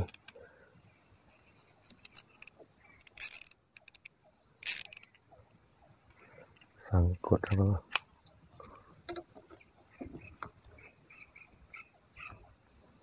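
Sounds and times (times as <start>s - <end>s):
insects chirring: 0.0s - 13.0s
fishing reel rattling and clicking: 1.9s - 5.2s.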